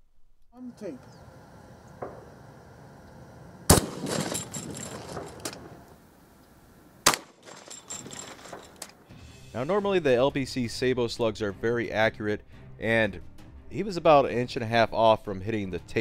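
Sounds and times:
shotgun shots: 0:03.7 - 0:05.9, 0:07.0 - 0:08.8.

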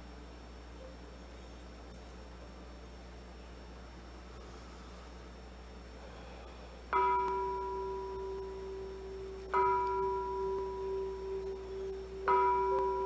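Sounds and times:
meditation bell ringing: 0:06.9 - 0:13.0.

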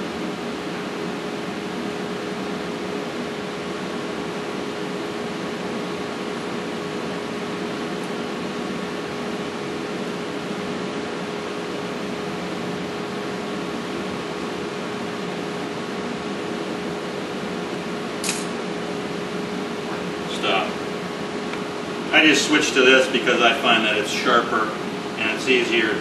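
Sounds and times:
constant low hum: 0:00.0 - 0:26.0
room noise hiss: 0:00.0 - 0:26.0
short click: 0:18.2 - 0:18.5.

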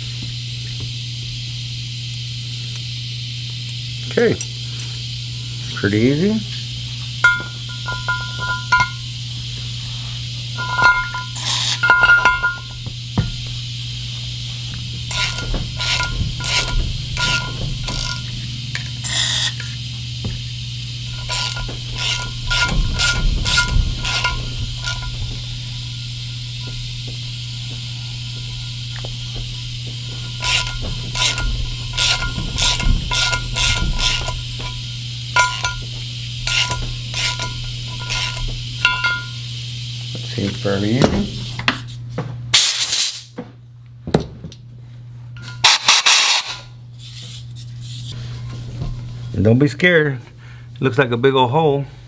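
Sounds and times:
steady low hum: 0:00.0 - 0:52.0
ratchet clicking: 0:06.6 - 0:09.2, 0:10.5 - 0:13.6, 0:14.2 - 0:39.9, 0:45.4 - 0:46.7.

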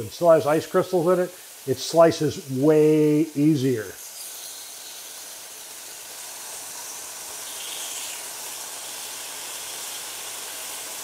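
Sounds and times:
chicken sizzling on a grill: 0:00.0 - 0:11.0.

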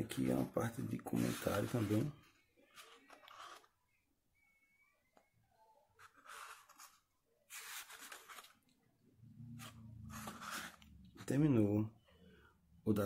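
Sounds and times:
book pages turning: 0:02.7 - 0:03.8, 0:06.0 - 0:08.7, 0:09.5 - 0:11.4.

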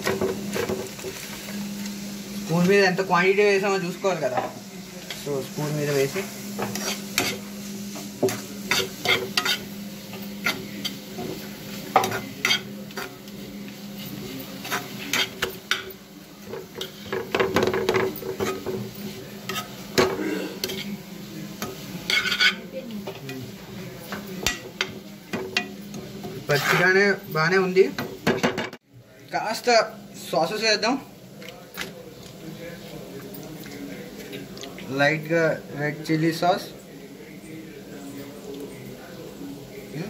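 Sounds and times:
light sizzle: 0:00.0 - 0:40.0
spoon scraping pan: 0:04.3 - 0:27.3.

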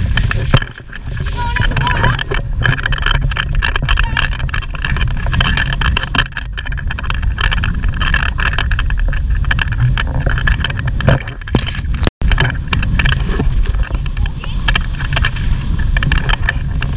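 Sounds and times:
wind buffeting microphone: 0:00.0 - 0:16.9.

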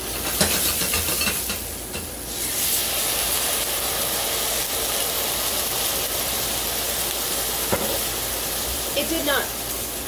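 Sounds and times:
liquid sizzling in hot pan: 0:00.0 - 0:10.0.

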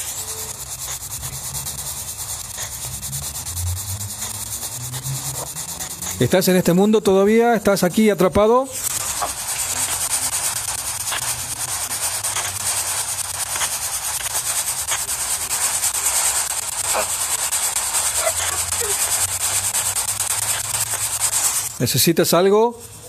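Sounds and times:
radio static hiss: 0:00.0 - 0:23.0
rapid fine clicks: 0:08.8 - 0:21.8.

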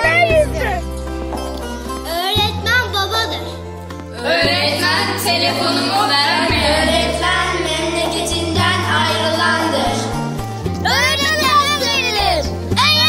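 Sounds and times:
held bass notes: 0:00.0 - 0:13.0
song with singing voice: 0:04.1 - 0:10.2.

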